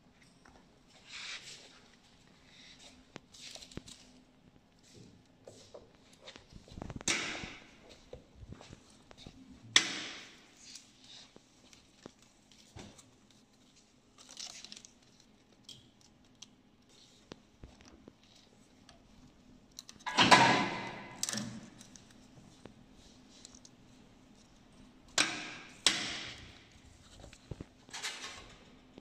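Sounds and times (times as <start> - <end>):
plastic strapping clicks and rustles: 10.6 - 16.6.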